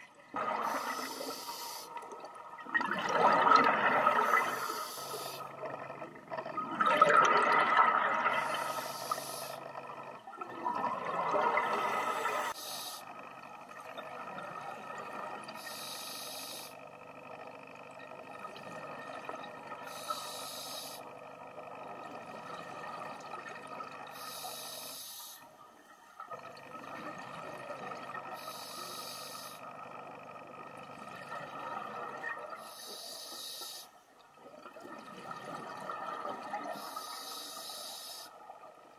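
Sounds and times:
faint steady tone: 0.0s - 7.0s, 7.8s - 38.9s
regulator inhaling hiss: 0.6s - 2.0s, 4.2s - 5.5s, 8.4s - 9.7s, 11.9s - 13.1s, 15.6s - 16.8s, 19.8s - 21.1s, 24.1s - 25.6s, 28.4s - 29.7s, 32.6s - 34.0s, 36.7s - 38.4s.

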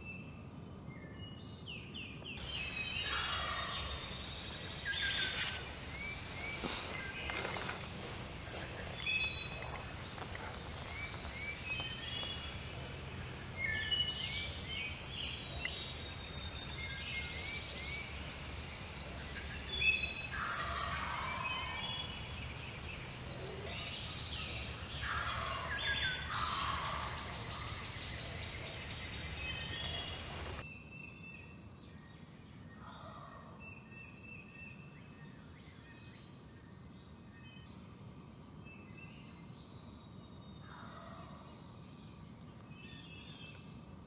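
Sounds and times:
songbirds chirping: 0.0s - 44.0s
low steady background rumble: 2.4s - 30.6s
wild turkey gobbling: 2.4s - 30.6s.

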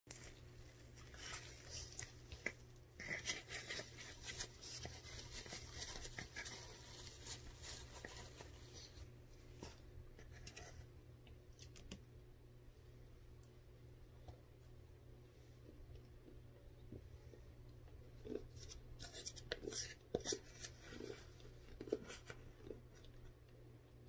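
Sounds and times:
spoon scraping frozen cornstarch: 18.2s - 23.2s.

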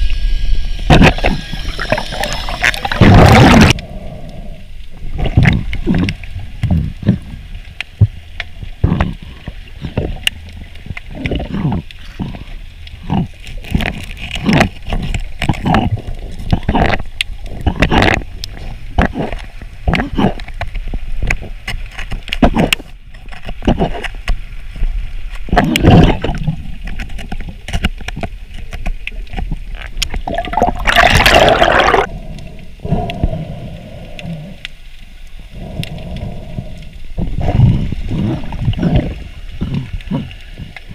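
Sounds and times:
underwater knocks and clicks: 0.9s - 3.8s, 5.0s - 32.1s, 37.2s - 40.9s
low underwater rumble: 28.3s - 40.9s.

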